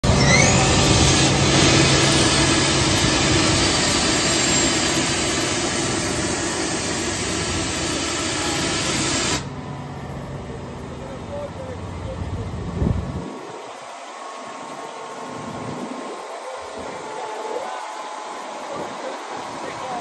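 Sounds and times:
low engine hum: 0.0 - 20.0
air compressor rushing hiss: 0.1 - 9.6.

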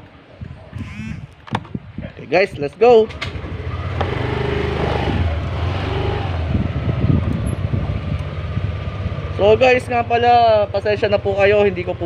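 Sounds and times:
motorcycle engine running: 3.3 - 12.0.

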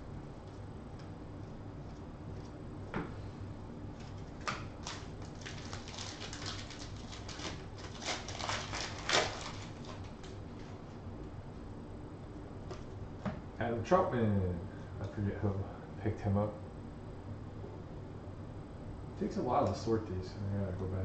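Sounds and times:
foil pack crinkling and tearing: 4.0 - 10.8.

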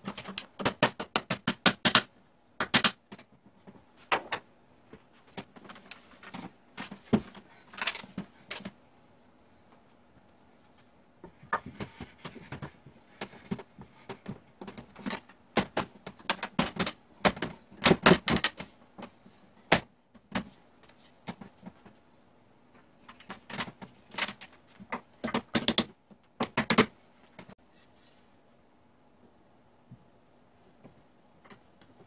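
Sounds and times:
wooden parts knocking together: 23.1 - 27.0.

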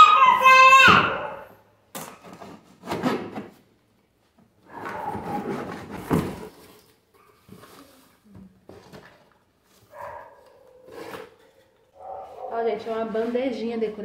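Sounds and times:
cardboard and tape rustling: 2.1 - 3.7, 4.7 - 13.6.

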